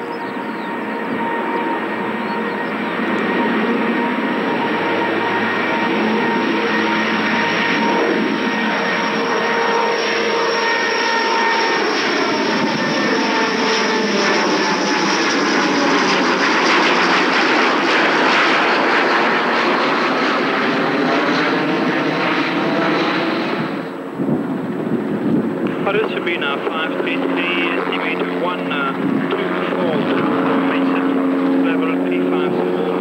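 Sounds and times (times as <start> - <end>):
turboprop aircraft passing overhead: 0.0 - 33.0.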